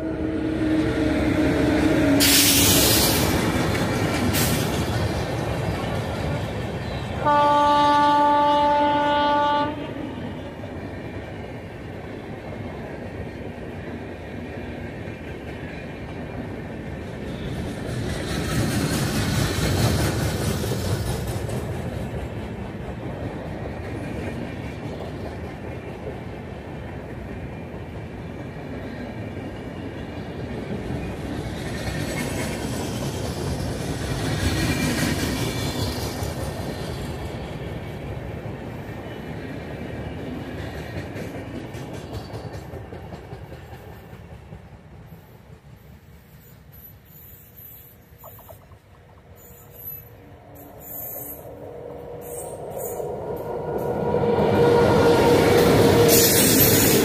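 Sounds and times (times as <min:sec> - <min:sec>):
train wheels rumbling on rails: 0:00.0 - 0:57.0
locomotive horn blast: 0:07.2 - 0:10.5.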